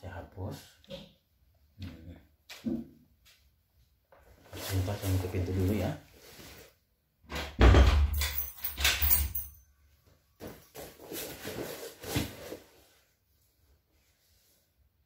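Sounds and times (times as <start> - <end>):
clothing rustle: 4.2 - 6.8, 10.4 - 14.8.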